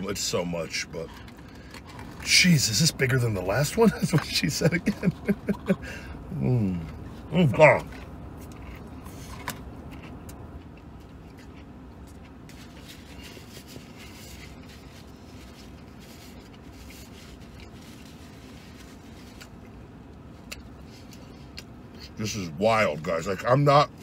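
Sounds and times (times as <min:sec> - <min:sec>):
steady low hum: 0:00.0 - 0:24.0
person chewing: 0:06.7 - 0:22.2.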